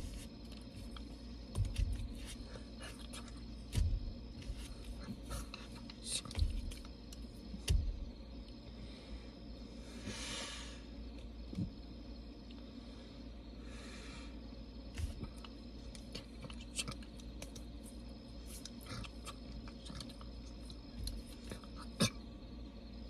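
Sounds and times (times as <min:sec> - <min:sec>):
dull thumps: 0:00.0 - 0:08.4, 0:14.9 - 0:15.5
crickets chirring: 0:00.0 - 0:23.0.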